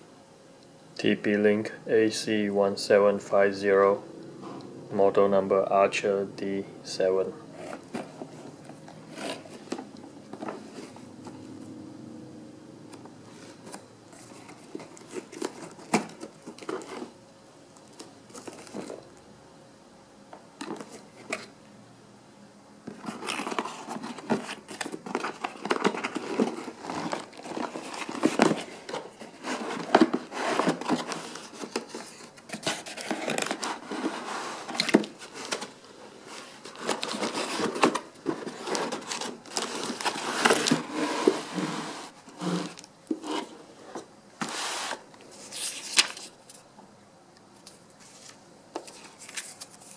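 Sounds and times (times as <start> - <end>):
packaging rustling and crinkling: 13.4 - 17.2, 17.8 - 19.0, 22.9 - 46.7, 47.6 - 49.9.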